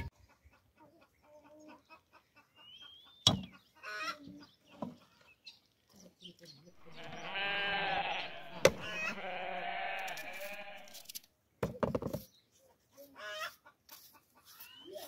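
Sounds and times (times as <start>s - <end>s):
farm animal bleating: 6.8s - 11.2s.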